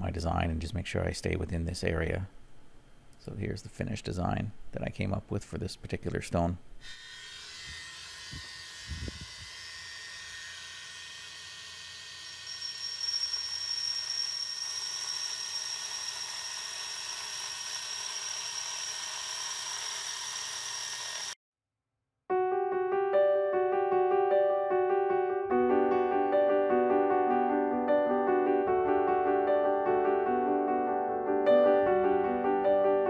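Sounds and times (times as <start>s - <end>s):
core drill high-pitched whine: 6.8s - 21.4s
piano music: 22.3s - 33.0s.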